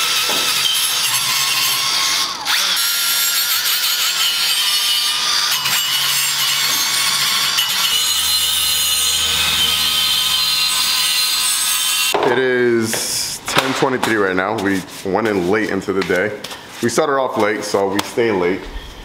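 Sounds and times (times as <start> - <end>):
power tool grinding metal: 0.0 - 12.2.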